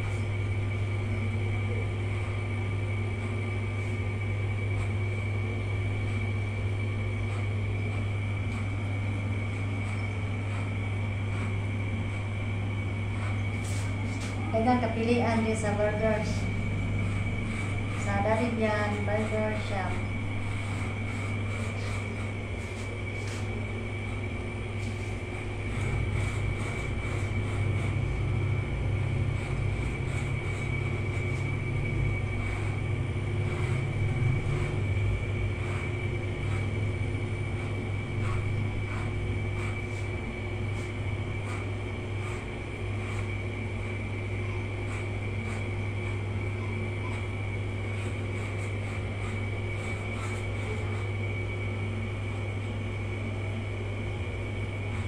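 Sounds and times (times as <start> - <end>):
electric hair clippers buzzing: 33.4 - 34.8.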